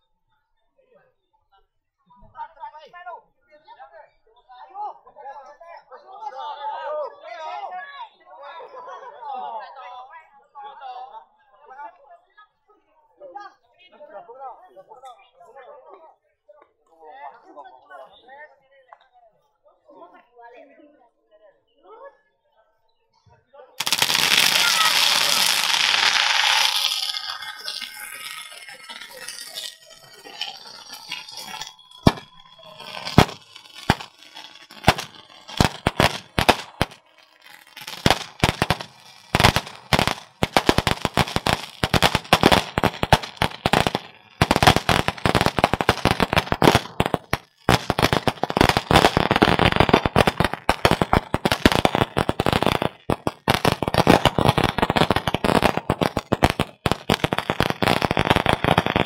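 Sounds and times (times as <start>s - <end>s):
firecrackers going off: 23.8s - 59.0s.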